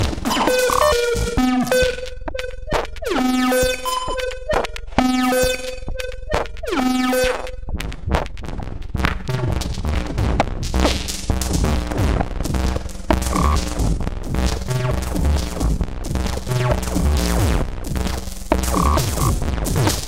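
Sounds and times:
electronic feedback music: 0.3s - 7.7s, 13.2s - 13.8s, 18.6s - 19.4s.

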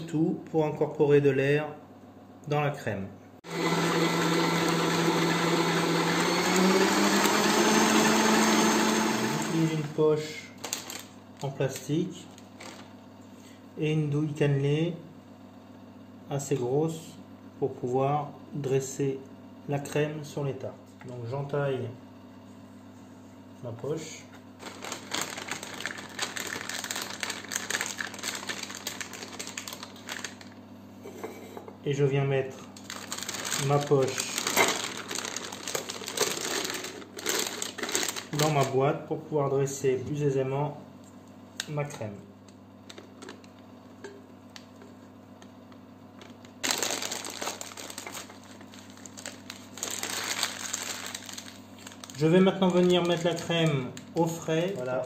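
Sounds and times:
plastic piping bag crinkling: 10.6s - 11.6s, 12.3s - 13.0s, 24.6s - 30.6s, 32.7s - 38.8s, 46.2s - 55.0s.

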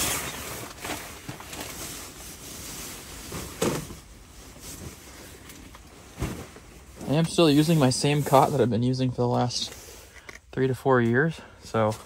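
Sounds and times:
sleeping bag rustling: 0.0s - 8.6s.

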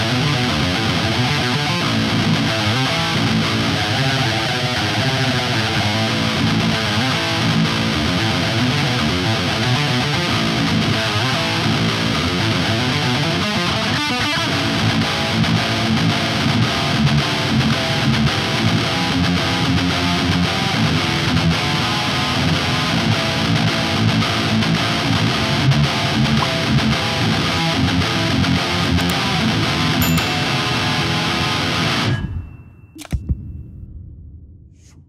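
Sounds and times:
electric guitar riffs: 0.0s - 32.2s.

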